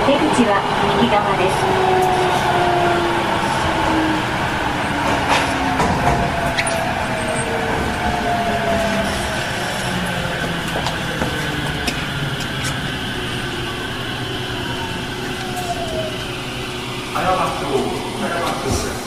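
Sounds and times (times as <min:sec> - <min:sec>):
train motor whine: 0:00.0 - 0:19.0
wheels running on rails: 0:03.2 - 0:19.0.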